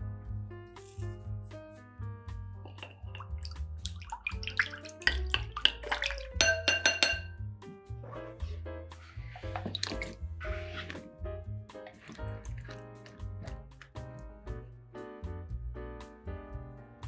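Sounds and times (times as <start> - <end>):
light background music: 0.0 - 17.0
water sloshing in bowl: 2.7 - 7.2, 9.2 - 11.0, 11.8 - 14.0
spoon clinking against glass: 4.6 - 7.4.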